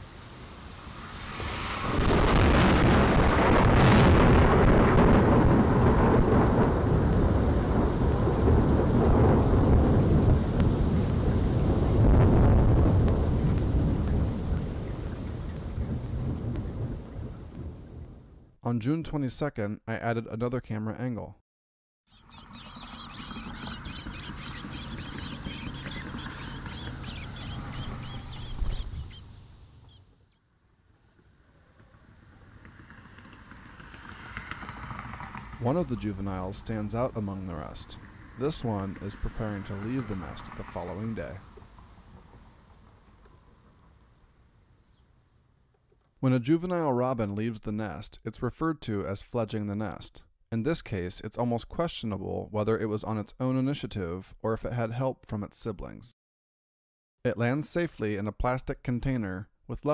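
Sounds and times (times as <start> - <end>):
rain falling: 0.0 - 18.4, 22.4 - 30.0, 33.4 - 44.4
thunder rumbling: 0.0 - 18.5, 22.6 - 29.8, 33.0 - 44.1
nestlings chirping: 22.1 - 30.4.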